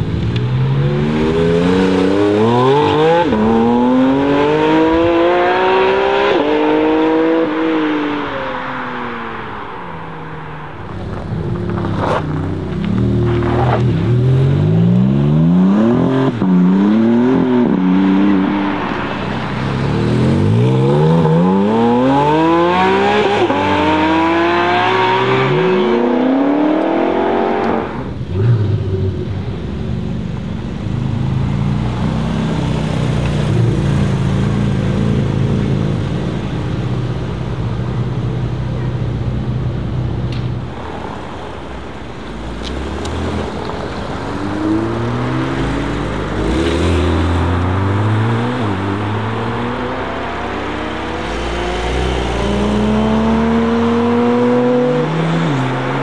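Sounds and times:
car engine accelerating hard: 0.0 - 8.3, 10.8 - 36.8, 42.2 - 56.0
low engine drone: 25.5 - 54.0.

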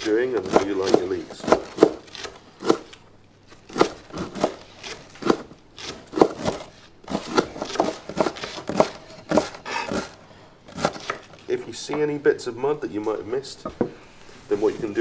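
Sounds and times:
knives chopping on wooden boards: 0.3 - 2.9, 3.7 - 10.1, 10.7 - 11.3.

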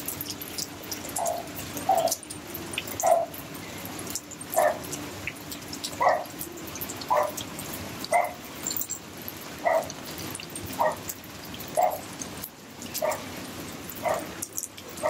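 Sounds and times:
dog barking: 1.2 - 2.2, 3.0 - 3.4, 4.6 - 4.9, 6.0 - 6.3, 7.1 - 7.4, 8.1 - 8.4, 9.6 - 10.0, 10.8 - 11.1, 11.8 - 12.1, 13.0 - 13.3, 14.0 - 15.0.

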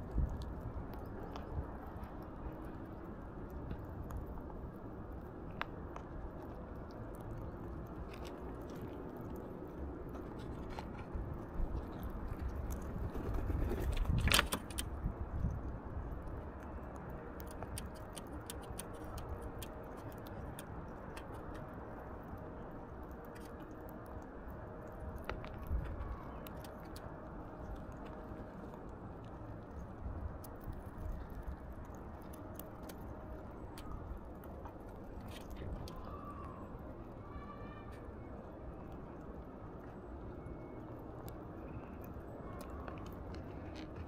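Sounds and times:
parakeet cracking seeds: 16.9 - 21.9.

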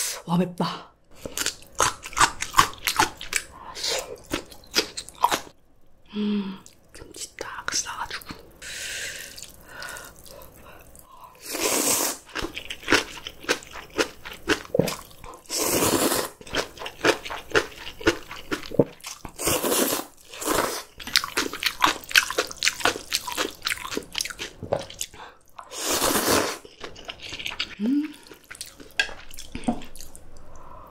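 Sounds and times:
crunching and chewing: 1.2 - 3.5, 12.3 - 15.4, 16.3 - 25.7, 26.6 - 30.2
slurping noodles: 11.4 - 14.2, 15.4 - 21.6, 25.6 - 28.5.

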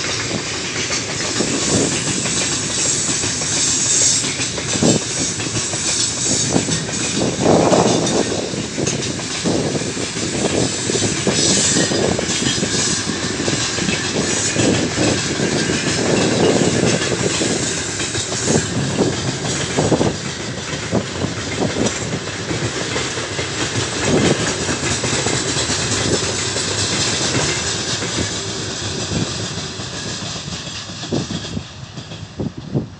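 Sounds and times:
freight train wheel rumble: 0.0 - 32.9
wheels clacking over rail joints: 0.0 - 32.9.

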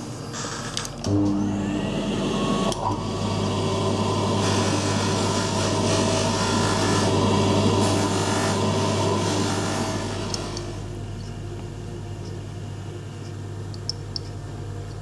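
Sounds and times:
polishing motor humming: 1.1 - 11.0.

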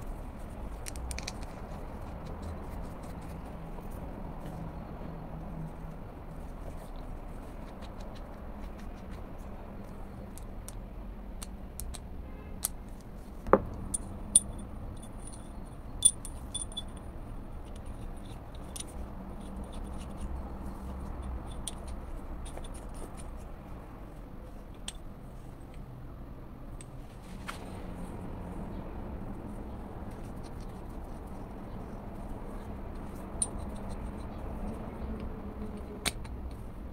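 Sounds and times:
metal tool clicks and clinks: 13.8 - 20.4, 21.1 - 23.3, 32.9 - 34.8.

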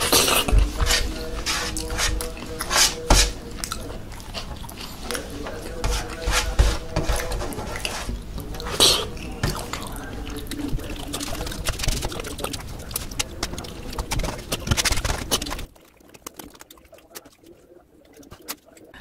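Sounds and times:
wet chewing and lip smacking: 3.4 - 6.2, 7.7 - 19.0
loud slurp: 7.5 - 18.6.

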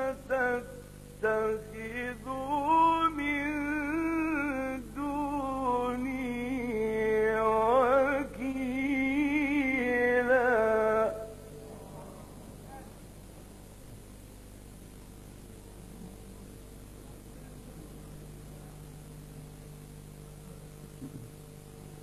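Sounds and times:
man reciting in melodic chant: 0.0 - 11.6.

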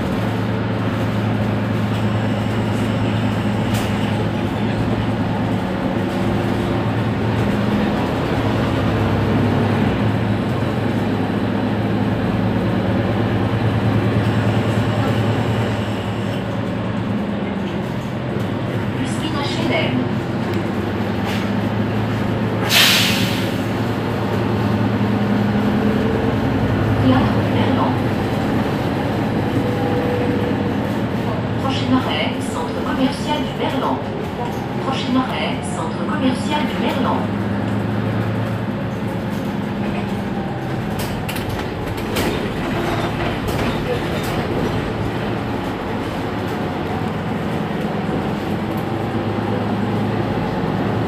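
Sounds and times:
bus engine idling: 0.0 - 51.0
compressed air hiss: 22.7 - 23.5.

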